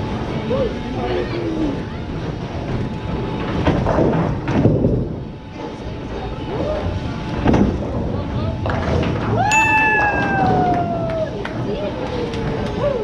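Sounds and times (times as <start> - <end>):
bowling ball rolling on wooden lane: 7.3 - 12.6.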